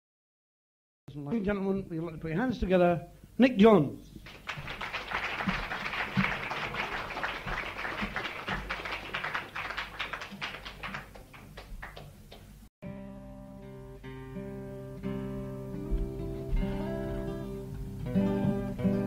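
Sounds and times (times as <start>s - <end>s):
audience applauding: 4.2s - 12.6s
acoustic guitar sustained notes: 12.8s - 19.0s.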